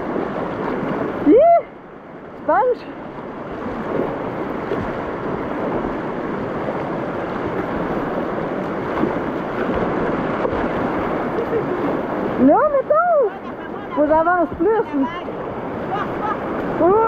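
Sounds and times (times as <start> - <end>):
river rapids rushing: 0.0 - 17.0.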